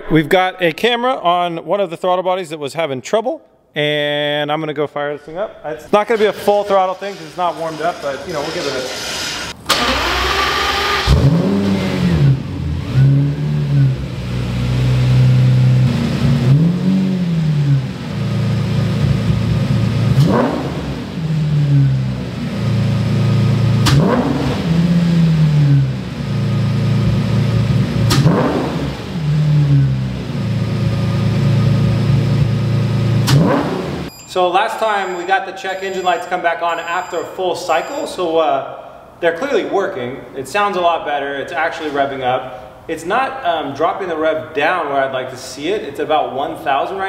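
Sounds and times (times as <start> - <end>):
car engine starting: 5.9 - 34.1
engine revving: 6.2 - 34.1.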